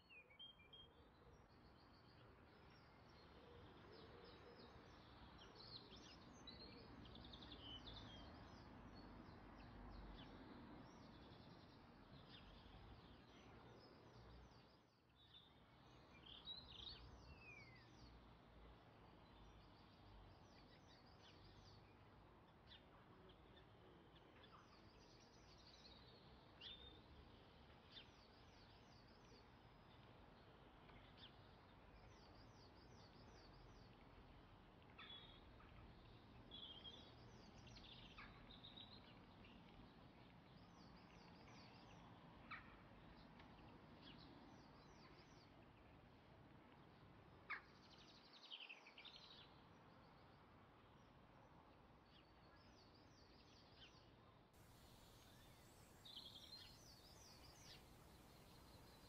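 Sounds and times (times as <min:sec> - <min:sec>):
low steady hiss: 0:00.0 - 0:59.0
faint bird-like chirps: 0:54.6 - 0:59.0.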